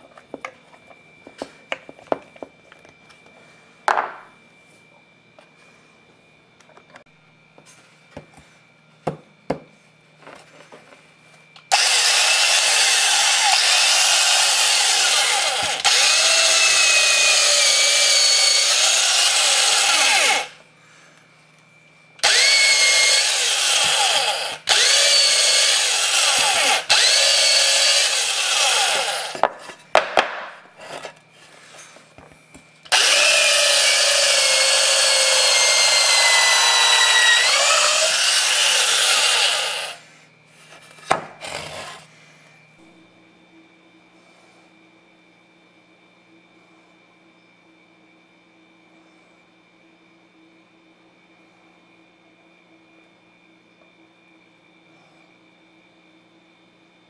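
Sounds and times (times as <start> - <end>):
electric drill boring into wood: 11.7 - 20.6, 22.2 - 29.4, 32.9 - 40.0.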